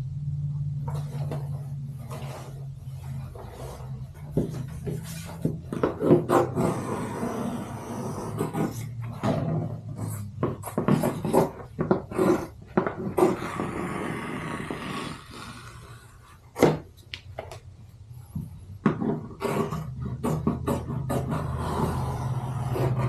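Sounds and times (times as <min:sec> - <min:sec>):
scissors cutting vinyl: 0:00.8 - 0:17.2, 0:18.4 - 0:23.0
vinyl rustling on table: 0:00.9 - 0:13.3.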